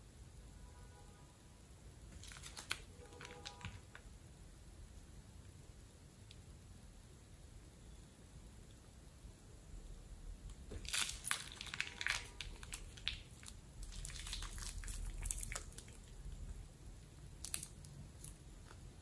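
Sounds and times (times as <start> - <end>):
plastic bag crinkling: 2.1 - 3.9, 10.7 - 16.5, 17.4 - 18.4
slime squelching with crackly clicks: 2.1 - 4.0, 10.4 - 16.6, 17.3 - 18.9.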